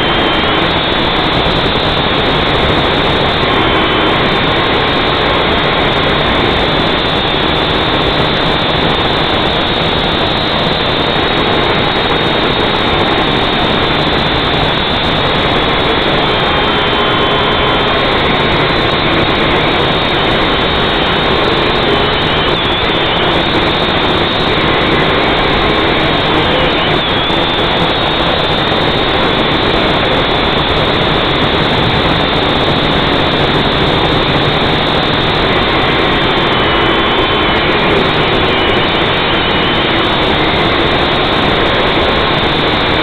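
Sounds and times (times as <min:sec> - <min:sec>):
drone motors buzzing whine: 0:00.0 - 0:43.0.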